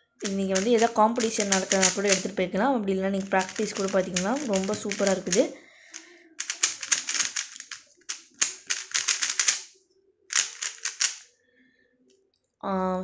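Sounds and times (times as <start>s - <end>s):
puzzle cube turns clicking: 0.2s - 2.4s, 3.2s - 9.7s, 10.3s - 11.2s.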